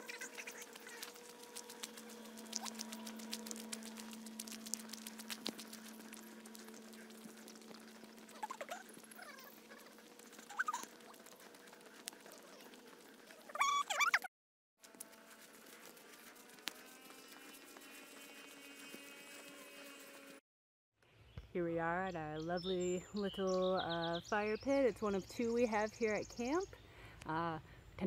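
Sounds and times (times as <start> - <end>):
faint steady hum: 0.0 - 13.2
footsteps crunching on gravel: 0.1 - 13.8
birds chirping: 21.3 - 27.0.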